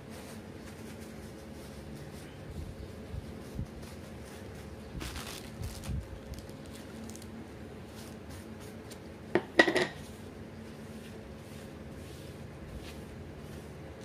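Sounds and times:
paper rustling: 0:03.3 - 0:09.1.

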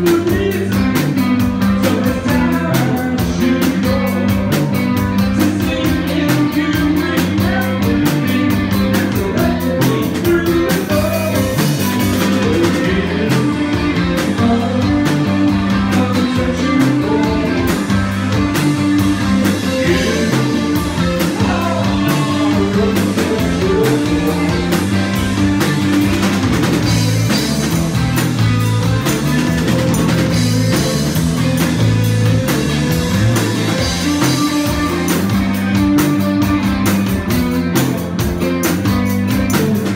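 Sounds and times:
man singing: 0:00.0 - 0:25.3, 0:30.3 - 0:31.2
drum kit: 0:00.0 - 0:39.9
electric guitar: 0:00.0 - 0:39.9.

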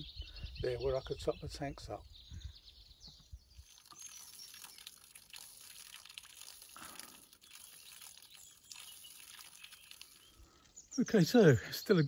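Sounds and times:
water trickling and dripping: 0:03.5 - 0:11.7.

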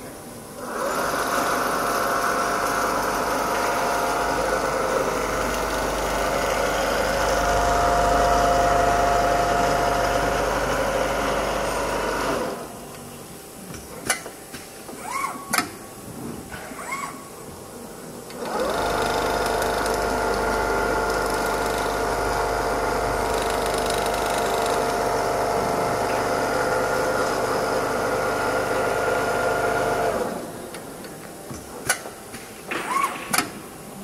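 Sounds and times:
sewing machine running: 0:00.6 - 0:12.6, 0:18.4 - 0:30.4.

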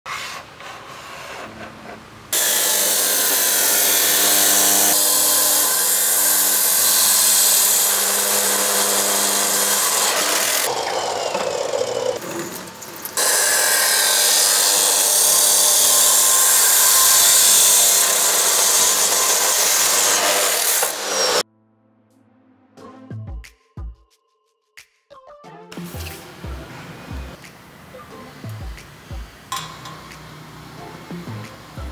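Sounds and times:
power tool cutting wood: 0:02.3 - 0:21.4.

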